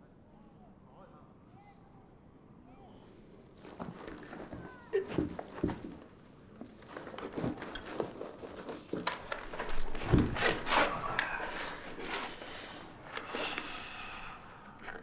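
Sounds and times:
clothing and gear rustling: 0:03.5 - 0:13.7
scuffs on wooden floor: 0:03.7 - 0:12.9.

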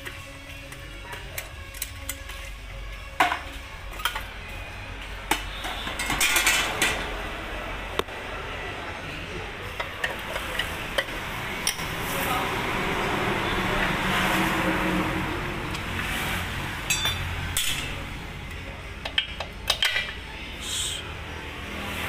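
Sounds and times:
sheet metal clanks: 0:05.3 - 0:07.1.

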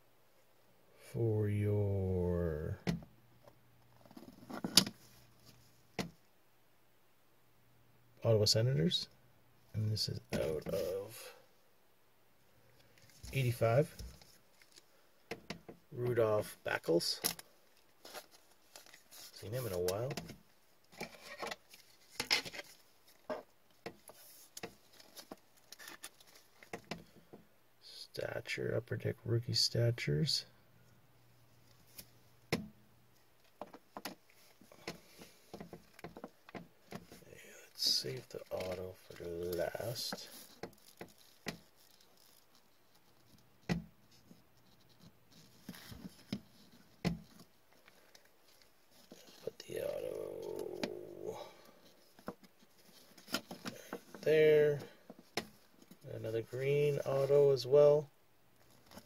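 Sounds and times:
plastic rubbing scrapes: 0:37.0 - 0:43.4.

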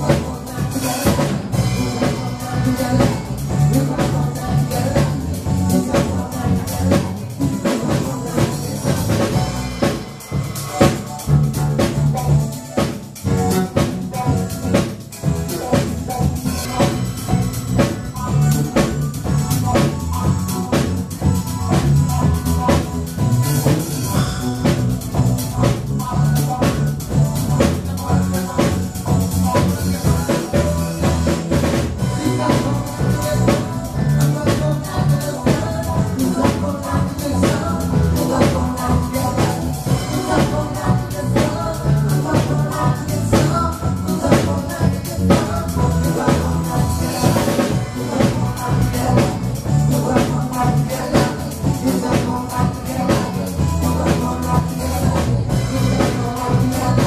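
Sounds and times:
band music: 0:00.0 - 0:57.0
drum kit steady beat: 0:00.0 - 0:57.0.

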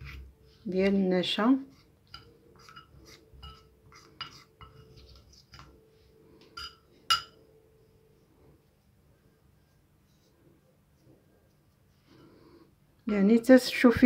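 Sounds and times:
metal spoon clinking ceramic dish: 0:02.1 - 0:04.9, 0:06.6 - 0:07.4.

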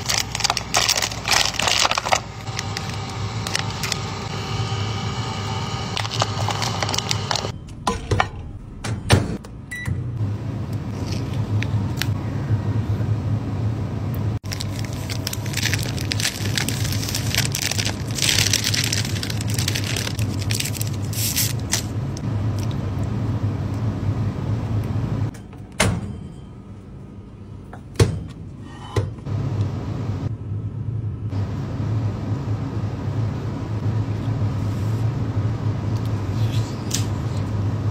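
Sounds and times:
plastic packaging crinkling: 0:00.0 - 0:04.3, 0:05.9 - 0:07.5, 0:14.4 - 0:22.0
microwave oven humming: 0:00.0 - 0:28.3, 0:29.2 - 0:37.9.

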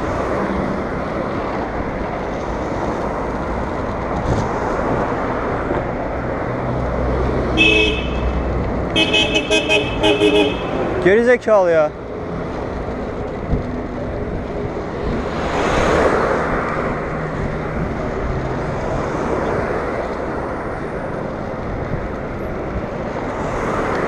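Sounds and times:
wind and road noise: 0:00.0 - 0:24.0
car horn honking: 0:07.6 - 0:11.0.

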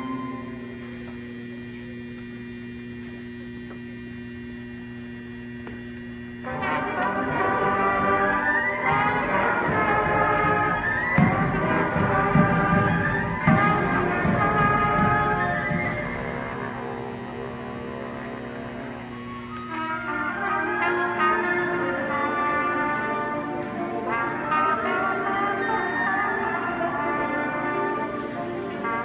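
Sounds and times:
brass band playing: 0:00.0 - 0:00.7, 0:06.4 - 0:29.0
drum hits: 0:08.8 - 0:17.4.

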